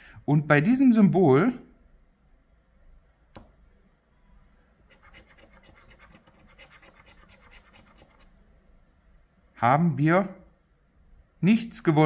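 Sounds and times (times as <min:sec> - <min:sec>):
light tap: 0:03.3 - 0:03.6
stick scraping lottery ticket: 0:04.9 - 0:08.3.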